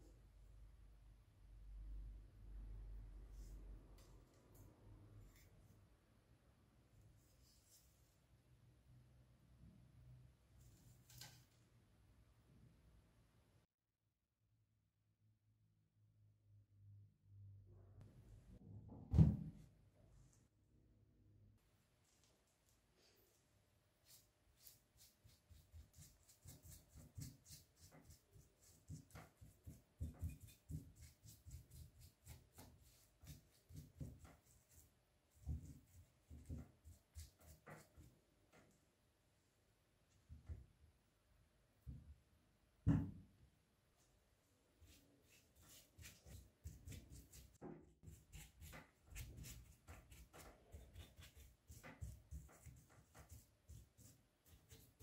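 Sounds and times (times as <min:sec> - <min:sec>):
paintbrush swishing strokes: 0:24.0 - 0:38.1, 0:44.7 - 0:55.0.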